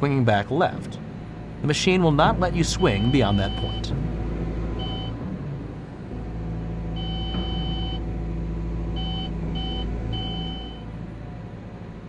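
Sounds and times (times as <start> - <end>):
excavator engine and hydraulics: 0.0 - 12.0
electronic alert beeps: 2.8 - 3.9, 7.0 - 8.0, 9.0 - 10.8.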